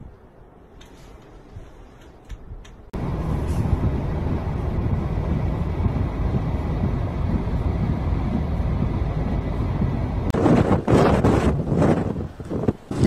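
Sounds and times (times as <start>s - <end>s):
wind buffeting microphone: 1.1s - 13.0s.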